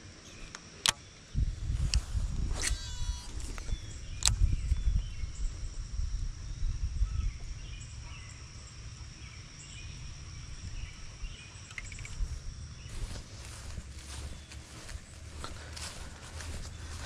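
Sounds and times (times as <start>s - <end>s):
insect drone: 0.0s - 17.0s
wind on microphone: 1.3s - 8.2s
bird chirps: 7.0s - 17.0s.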